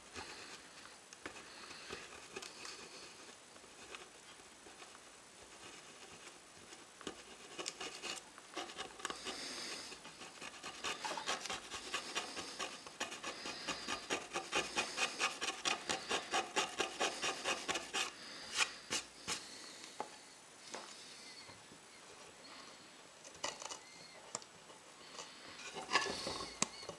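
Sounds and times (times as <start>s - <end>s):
razor blade scraping wood: 7.4s - 19.4s.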